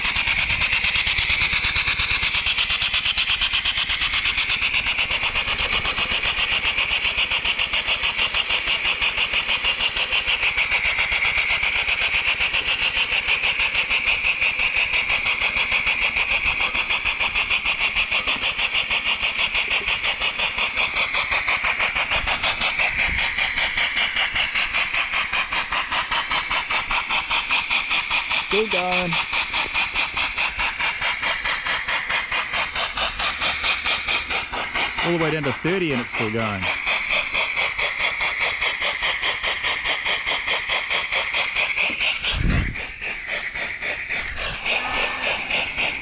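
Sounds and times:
steam engine chuffing: 0:00.0 - 0:46.0
steam hiss: 0:00.0 - 0:46.0.

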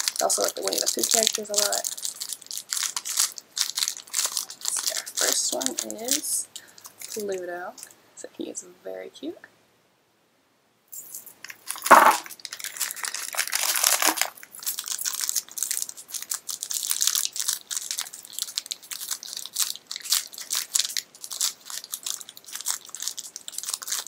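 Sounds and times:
wrapper tearing: 0:00.0 - 0:07.4, 0:11.4 - 0:24.0
plastic wrapper crinkling: 0:00.0 - 0:07.9, 0:11.0 - 0:24.0.

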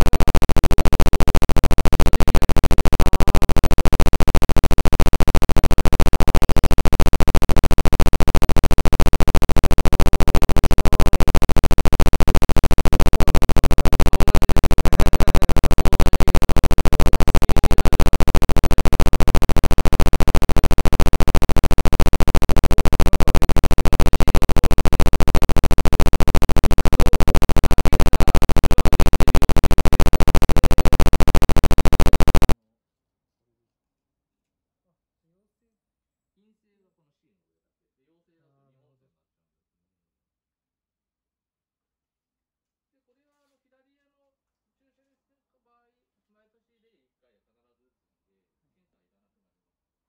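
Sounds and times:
background music with fast pulse: 0:00.0 - 0:32.6.

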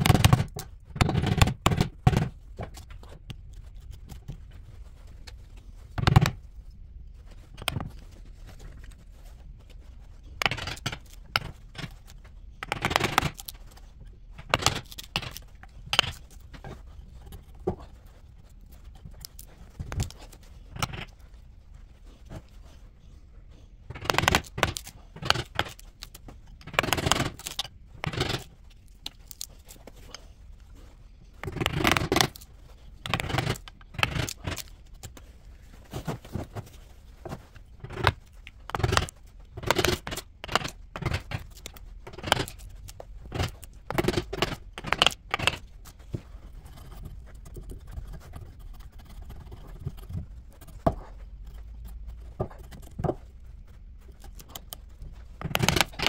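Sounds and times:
chisel scraping wood: 0:23.9 - 0:30.2, 0:31.4 - 0:35.2, 0:37.8 - 0:53.2, 0:55.4 - 0:56.0.

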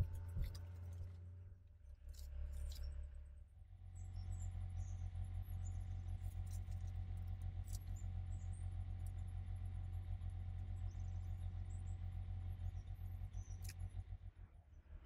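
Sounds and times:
steady low hum: 0:00.0 - 0:09.0.

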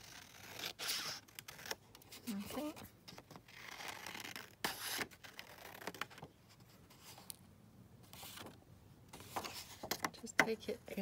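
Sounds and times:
paper handling: 0:08.1 - 0:10.2.

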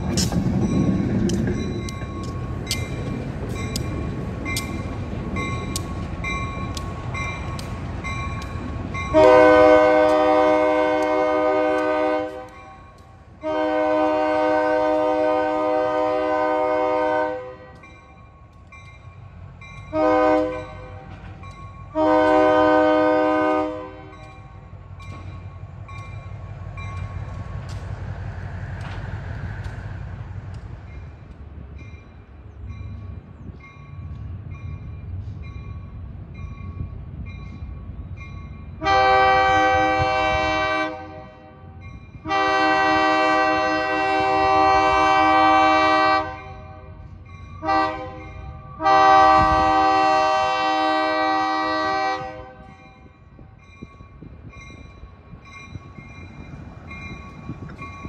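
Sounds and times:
locomotive engine rumble: 0:00.0 - 0:58.0
locomotive air horn: 0:09.1 - 0:12.6, 0:13.4 - 0:17.8, 0:19.9 - 0:21.1, 0:21.9 - 0:24.2, 0:38.8 - 0:47.0, 0:47.6 - 0:52.7.

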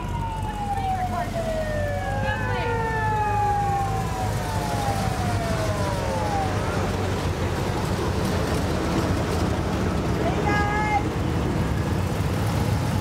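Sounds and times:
siren winding down: 0:00.0 - 0:08.0.

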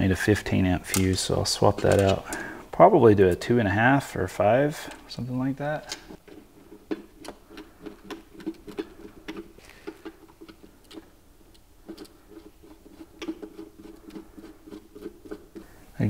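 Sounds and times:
screwdriver clicking and scraping: 0:00.9 - 0:02.4, 0:05.9 - 0:15.7.

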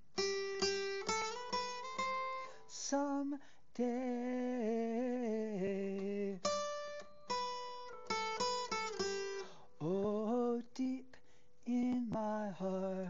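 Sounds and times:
acoustic guitar picked: 0:00.0 - 0:13.0
man singing with vibrato: 0:02.4 - 0:06.9, 0:09.6 - 0:13.0.

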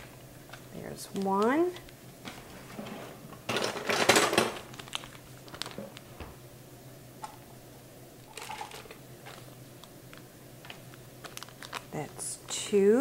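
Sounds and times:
low steady hum: 0:00.0 - 0:13.0
paper wrapper rustling: 0:03.5 - 0:06.2, 0:08.3 - 0:12.3.

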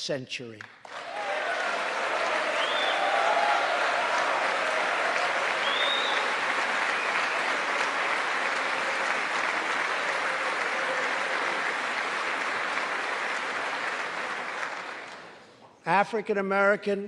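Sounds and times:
audience applauding: 0:00.8 - 0:15.5.

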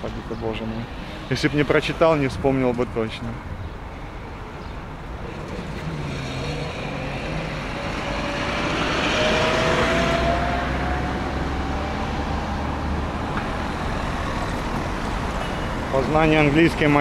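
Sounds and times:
vehicle passing close by: 0:05.2 - 0:15.4.

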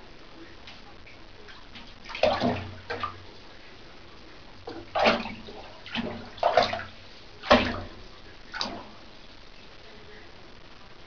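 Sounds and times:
bathwater splashing: 0:01.4 - 0:09.3.

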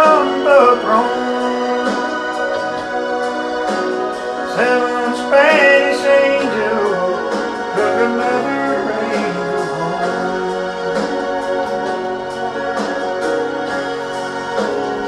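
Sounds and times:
country ballad backing track: 0:00.0 - 0:15.0.

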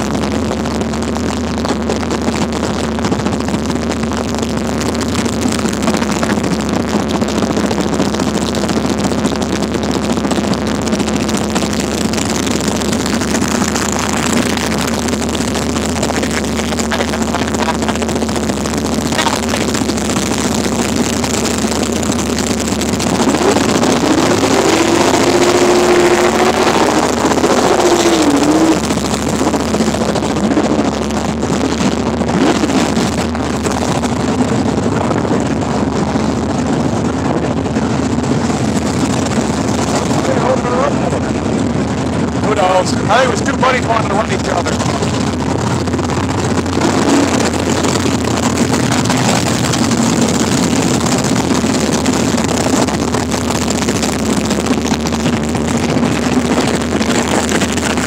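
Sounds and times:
drag race car engines running: 0:00.0 - 0:58.0.

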